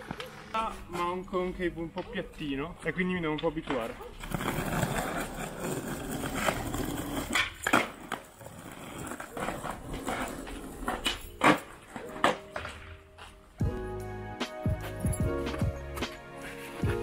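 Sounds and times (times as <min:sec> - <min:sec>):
skateboard wheels rolling on asphalt: 0:00.0 - 0:13.8, 0:15.4 - 0:17.0
skateboard popping and landing: 0:03.6 - 0:13.1.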